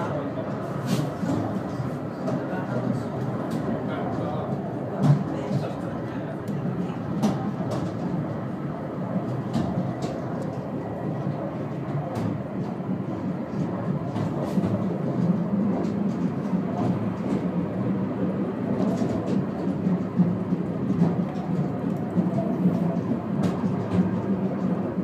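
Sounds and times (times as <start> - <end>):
funicular wheels rumbling on track: 0.0 - 25.0.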